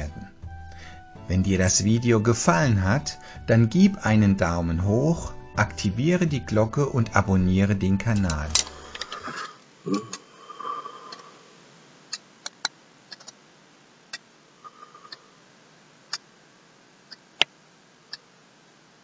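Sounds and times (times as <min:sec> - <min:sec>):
sharp clicks: 0:12.1 - 0:13.4.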